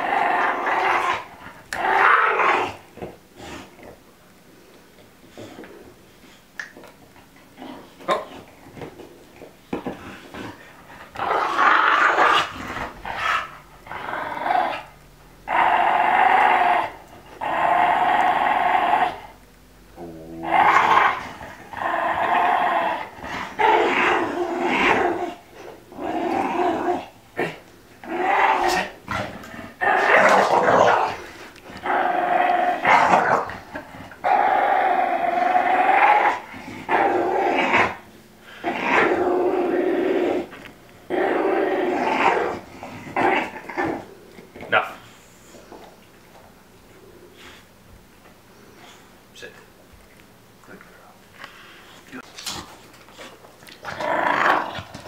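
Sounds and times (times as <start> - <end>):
dog growling: 0.0 - 3.7, 9.8 - 45.2, 52.3 - 55.0.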